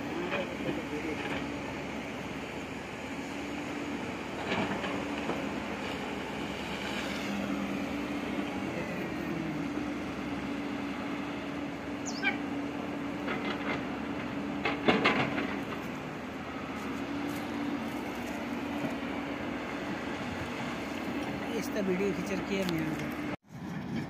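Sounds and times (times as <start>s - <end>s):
excavator engine humming: 0.0s - 24.0s.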